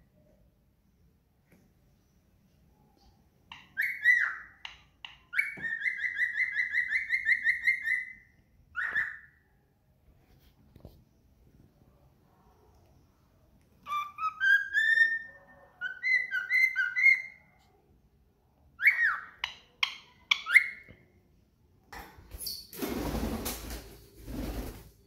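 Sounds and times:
cockatiel whistling: 3.6s - 4.7s, 5.3s - 8.2s, 8.8s - 9.3s, 13.9s - 17.5s.

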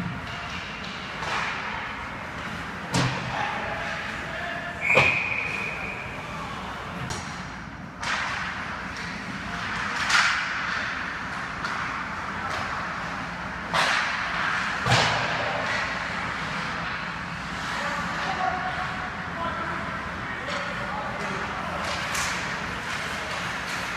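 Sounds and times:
hockey sticks cracking on puck: 0.0s - 5.9s, 6.9s - 23.9s
skates scraping on ice: 8.1s - 23.9s.

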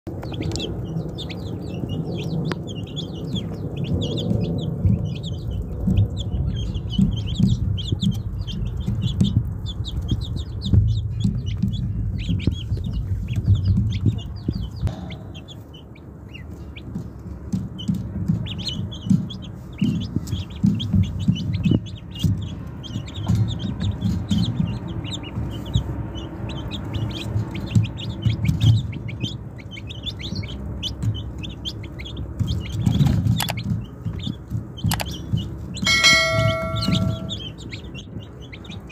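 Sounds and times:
ducklings peeping: 0.1s - 38.9s.

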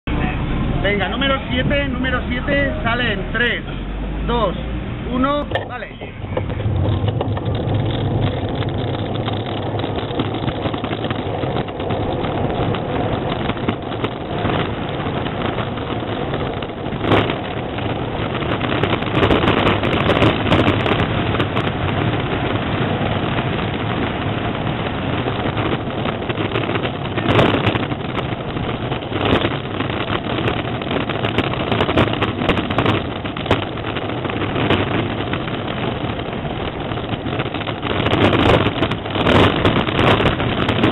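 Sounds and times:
wind on microphone: 0.0s - 40.9s
tyres rolling on asphalt: 0.1s - 40.9s
chassis knocks and rattles: 5.5s - 14.9s.

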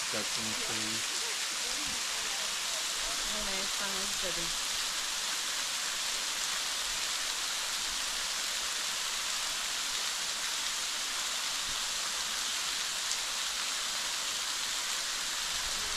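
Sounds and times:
waterfall hissing: 0.0s - 15.9s.

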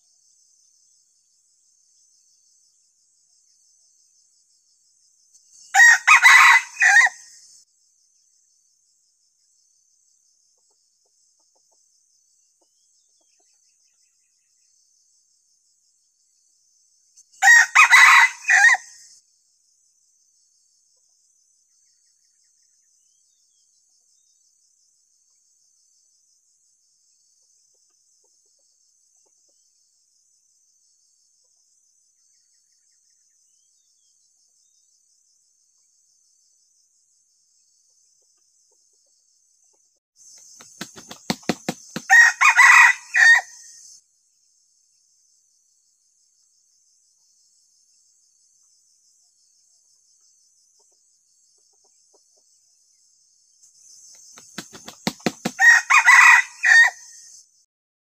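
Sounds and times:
rooster crowing: 5.8s - 7.3s, 17.4s - 19.0s, 41.4s - 43.7s, 54.7s - 57.2s
high insect buzz: 40.2s - 51.8s, 52.4s - 57.7s.

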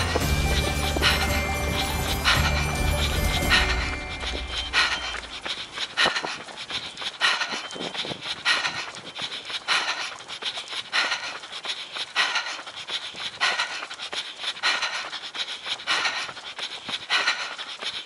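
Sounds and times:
runner breathing hard: 0.0s - 18.0s.

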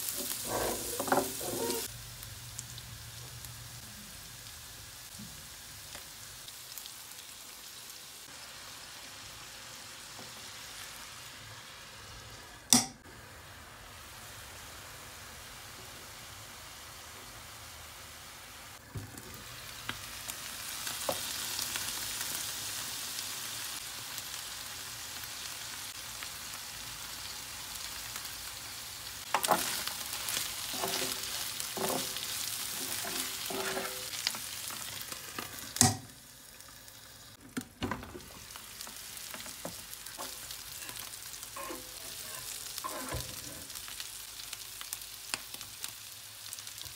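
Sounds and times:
utensils scraping a pan: 0.0s - 1.9s, 30.7s - 34.3s, 41.6s - 43.6s
meat sizzling in a pan: 0.0s - 37.4s, 38.1s - 46.9s.

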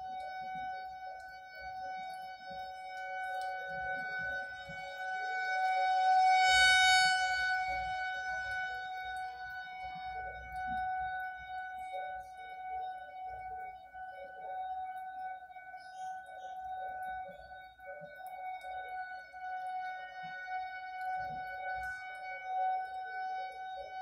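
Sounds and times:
warning siren steady tone: 0.0s - 24.0s.

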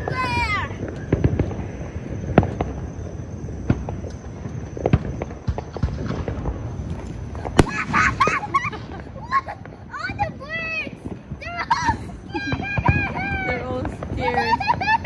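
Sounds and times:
firecracker bangs and pops: 0.0s - 10.3s
rumble of distant explosions: 0.0s - 15.0s.

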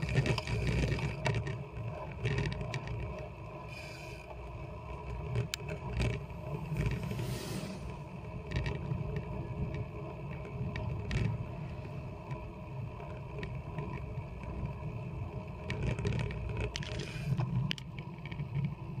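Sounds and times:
clicks and rattles: 0.0s - 3.3s, 15.6s - 18.8s.

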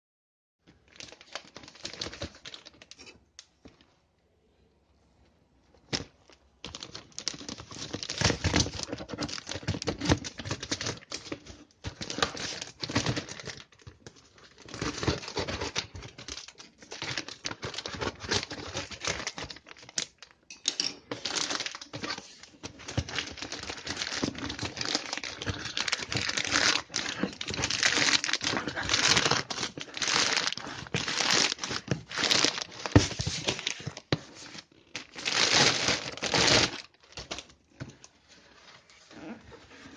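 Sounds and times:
plastic mailer bag crinkling: 6.2s - 20.4s, 21.0s - 37.5s.

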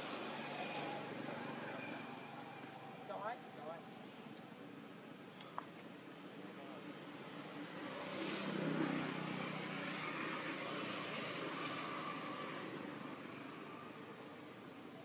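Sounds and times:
passing motor vehicle engine: 7.2s - 14.7s.

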